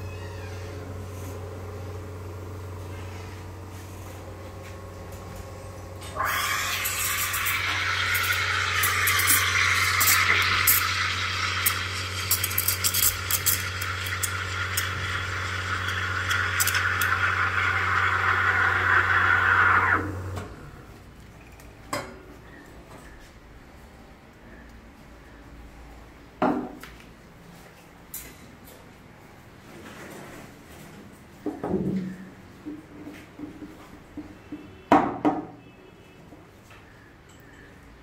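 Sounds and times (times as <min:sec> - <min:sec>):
steam wand hissing in milk: 0:06.1 - 0:20.1.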